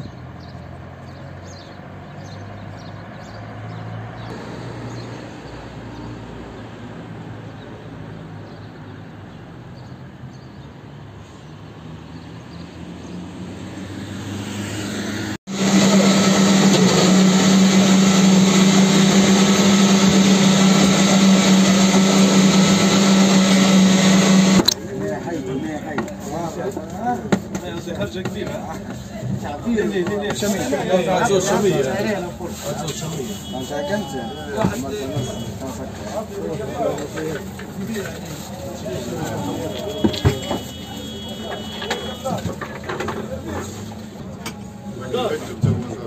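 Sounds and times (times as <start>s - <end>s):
engine-like hum: 12.0s - 25.2s
loud motor drone with hiss: 15.5s - 24.8s.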